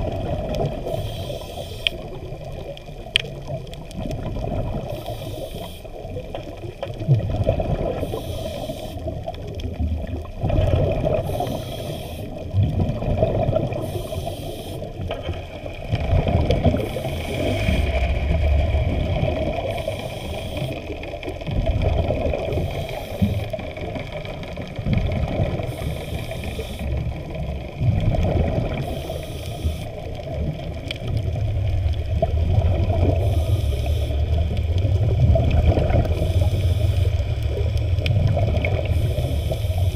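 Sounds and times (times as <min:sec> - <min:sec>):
underwater sloshing and rushing water: 0:00.0 - 0:39.9.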